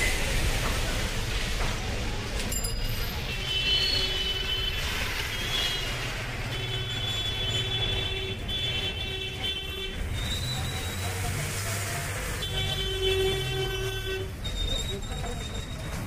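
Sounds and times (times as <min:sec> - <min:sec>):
traffic rumble: 0:00.0 - 0:16.0
car horns tooting: 0:03.2 - 0:11.2, 0:12.2 - 0:15.9.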